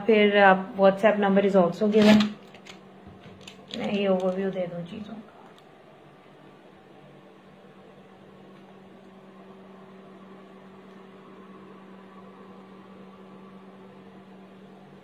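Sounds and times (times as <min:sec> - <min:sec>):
low electrical hum with hiss: 0:00.0 - 0:15.0.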